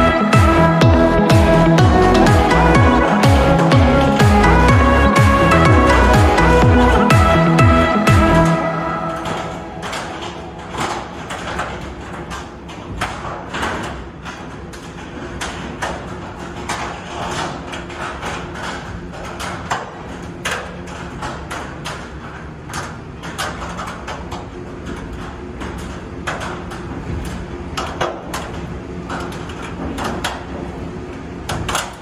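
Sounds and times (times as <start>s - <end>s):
diesel engine running: 0.0s - 11.0s
metallic clanks and knocks: 0.2s - 30.7s.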